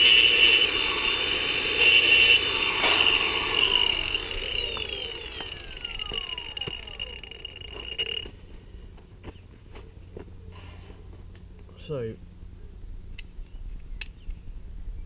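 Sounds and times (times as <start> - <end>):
angle grinder cutting sheet steel: 0.0 - 8.3.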